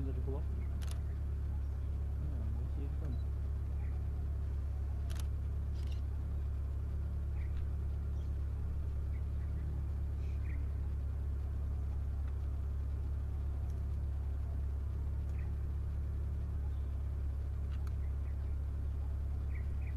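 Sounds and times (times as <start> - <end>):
steady low hum: 0.0 - 19.9
faint high chirps: 3.0 - 6.0, 13.6 - 19.9.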